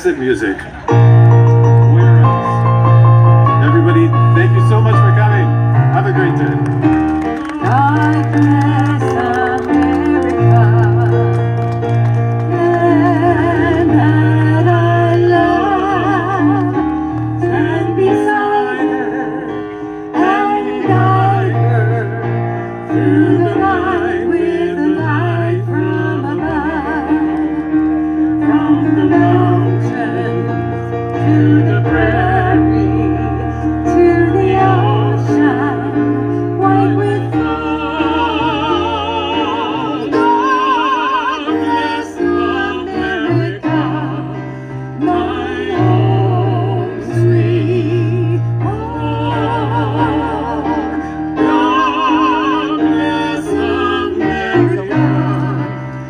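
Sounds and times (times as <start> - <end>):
keyboard bass notes: 0.0 - 56.0
person singing with vibrato: 12.5 - 55.8.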